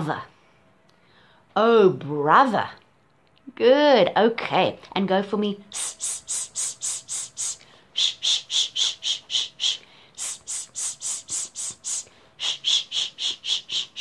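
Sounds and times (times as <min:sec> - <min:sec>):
woman making hissing speech sounds: 0:05.7 - 0:14.0.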